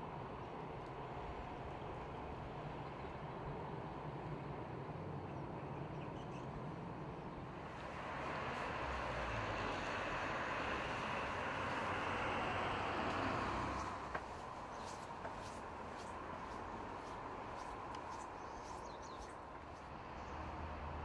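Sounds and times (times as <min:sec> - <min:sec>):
train rumbling on the line: 0:00.0 - 0:21.0.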